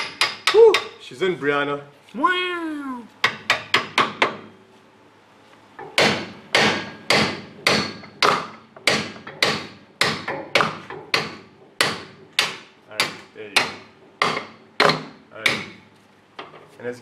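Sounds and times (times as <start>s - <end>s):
hammer striking metal: 5.8s - 15.8s.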